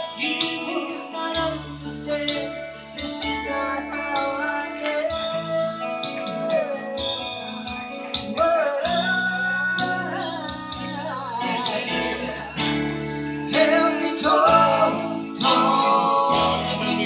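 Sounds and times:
guitar accompaniment: 0:00.0 - 0:17.0
woman singing into microphone: 0:00.0 - 0:17.0
light percussion beat: 0:02.3 - 0:13.7.

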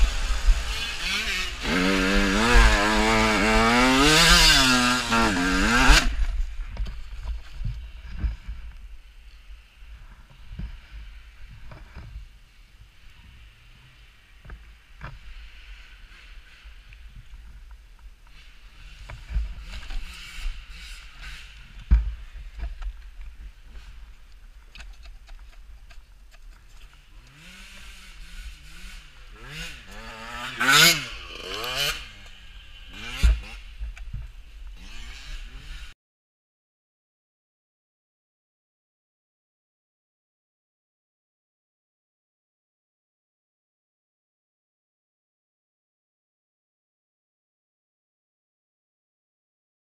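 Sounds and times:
dirt bike thudding and sliding: 0:00.0 - 0:36.0.

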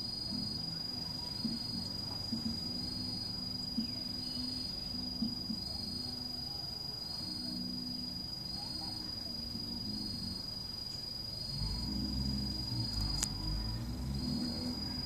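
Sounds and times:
faint low tones: 0:00.0 - 0:15.0.

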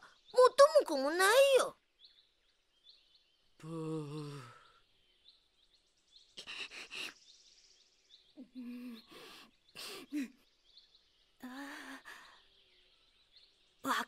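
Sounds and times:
faint high insect chirps: 0:00.0 - 0:14.0.

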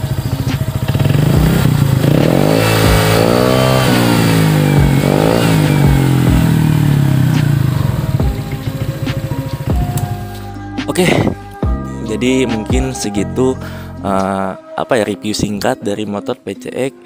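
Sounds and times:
scooter engine idling and revving: 0:00.0 - 0:11.9.

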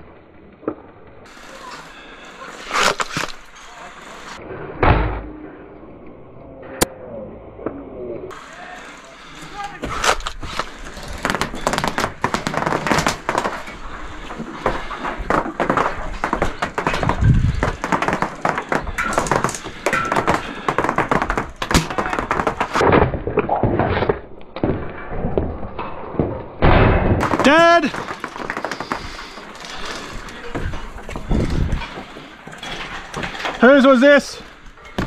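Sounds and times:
clatter of knocks and thuds: 0:14.4 - 0:24.8.

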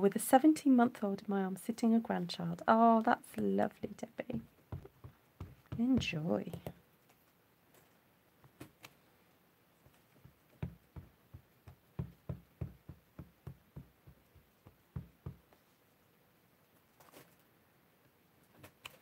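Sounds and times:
stamp knocking on ink pad: 0:04.3 - 0:06.8, 0:10.2 - 0:15.5.

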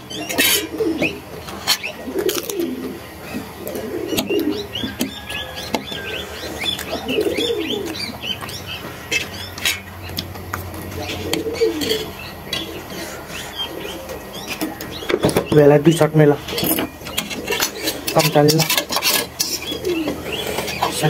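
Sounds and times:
rapid high bird chirps: 0:00.0 - 0:10.2
bird cooing: 0:00.0 - 0:21.0.

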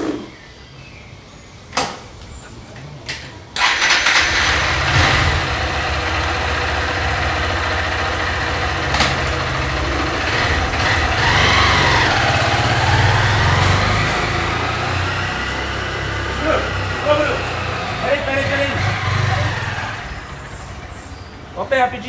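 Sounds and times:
motorcycle engine starting and idling: 0:03.6 - 0:21.8.

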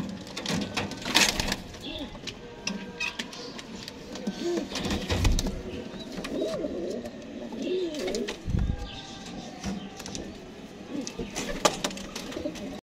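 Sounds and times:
pigeon cooing: 0:04.1 - 0:09.0.

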